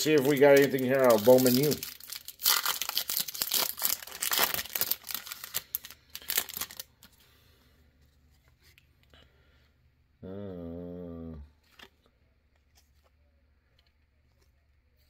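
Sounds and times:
foil wrapper tearing and crinkling: 0.0s - 7.0s.

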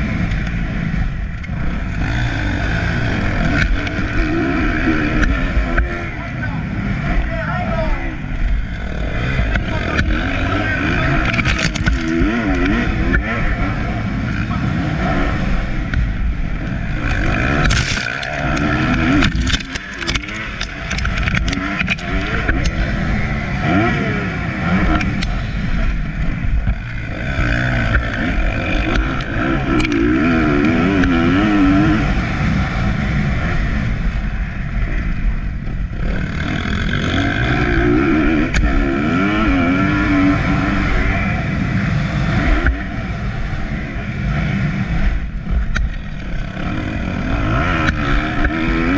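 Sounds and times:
dirt bike engine revving: 0.0s - 48.9s
sharp ticks: 8.4s - 10.6s, 15.8s - 23.0s, 24.8s - 25.5s.

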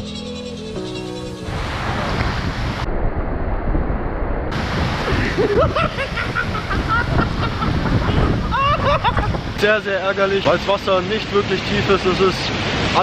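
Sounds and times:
waterfall rushing: 0.6s - 2.9s, 4.5s - 13.0s
wind buffeting microphone: 1.5s - 9.7s.

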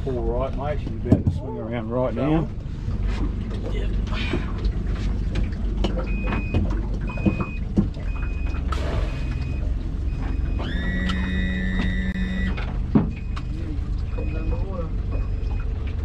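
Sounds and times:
motorboat engine rumbling: 0.0s - 16.0s
wind and water noise: 0.0s - 16.0s
short high beeps: 10.3s - 12.6s
steady electronic tone: 10.3s - 12.6s.

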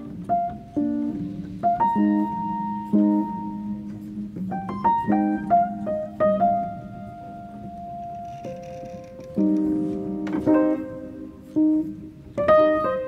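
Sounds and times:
slow piano melody: 0.0s - 13.0s.

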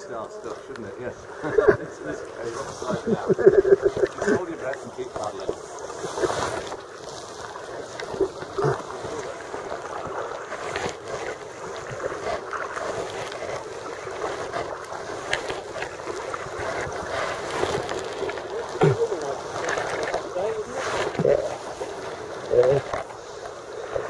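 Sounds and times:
paddle splashing: 0.0s - 24.0s
water lapping against hull: 0.0s - 24.0s.

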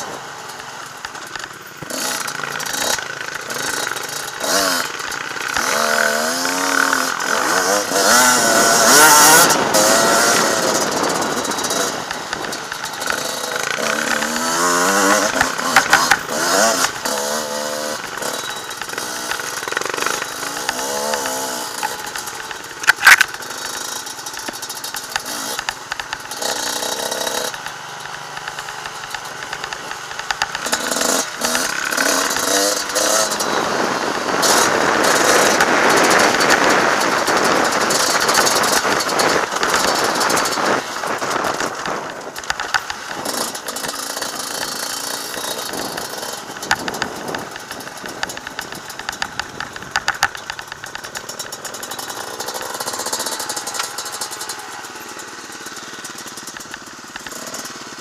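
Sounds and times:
rushing wind: 0.0s - 57.9s
motorcycle engine revving: 0.0s - 58.0s
rattling: 0.0s - 58.0s.

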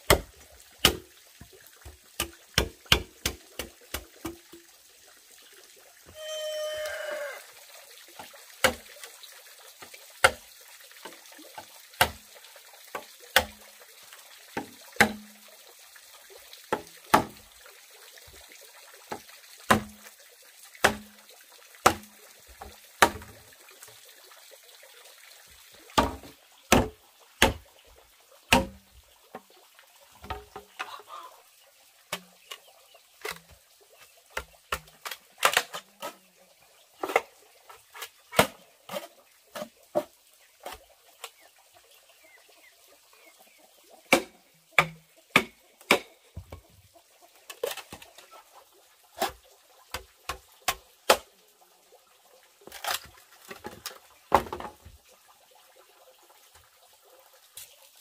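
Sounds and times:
pitched bird call: 6.1s - 7.4s
sharp chopping strikes: 44.1s - 46.1s.

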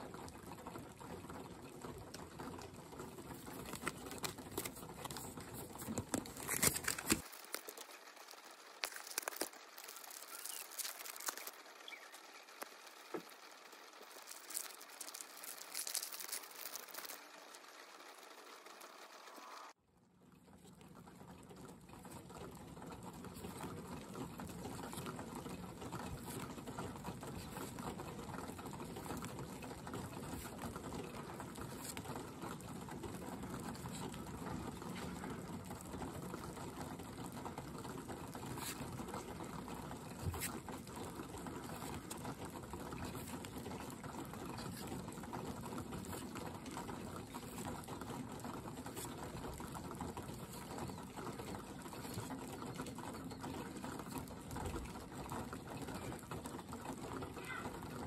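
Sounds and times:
ice dripping from branches: 6.5s - 18.2s
steady rain: 11.2s - 15.7s.

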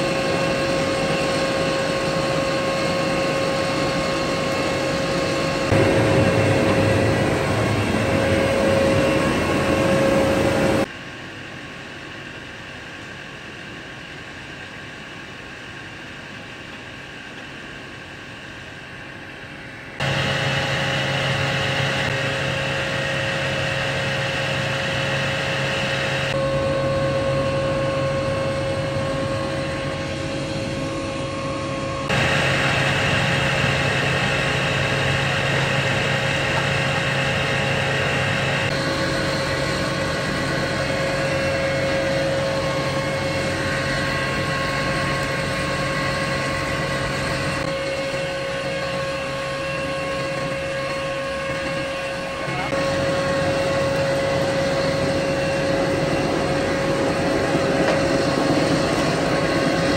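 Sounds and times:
machine motor humming: 3.9s - 10.8s.

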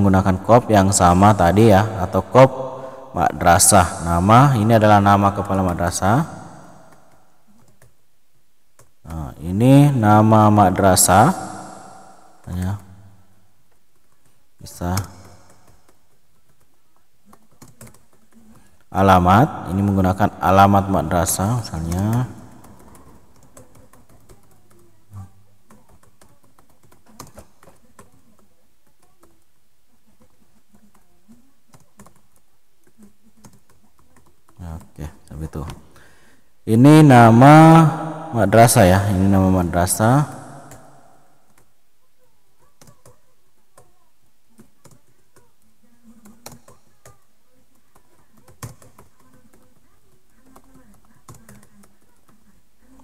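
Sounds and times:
typing on computer keyboard: 6.8s - 8.0s, 13.7s - 18.8s, 21.6s - 29.6s, 30.2s - 35.8s, 40.6s - 41.8s, 42.6s - 53.0s.

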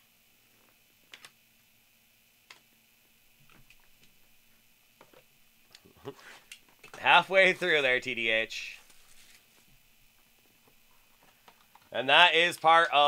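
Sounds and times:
trading cards shuffling: 6.1s - 9.7s.

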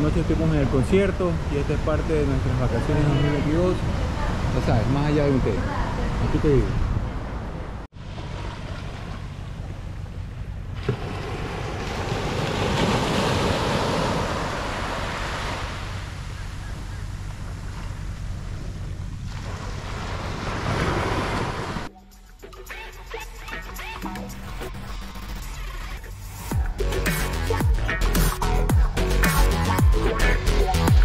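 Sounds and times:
surf breaking on beach: 10.8s - 16.3s, 19.2s - 21.9s.

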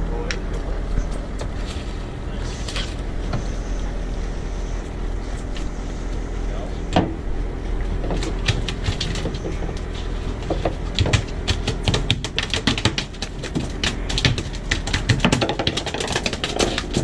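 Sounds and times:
boat engine hum: 0.0s - 17.0s
fish flapping in a landing net: 8.1s - 17.0s.

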